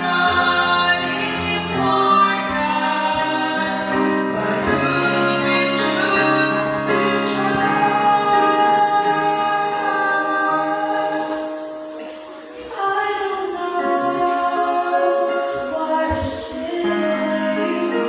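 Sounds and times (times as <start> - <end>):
two women singing a duet: 0.0 - 18.0.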